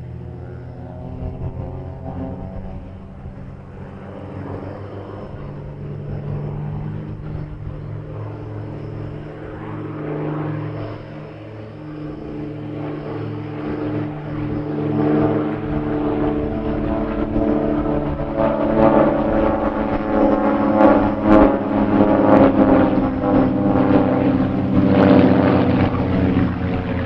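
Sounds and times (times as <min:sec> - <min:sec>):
biplane engines droning overhead: 0:00.0 - 0:27.0.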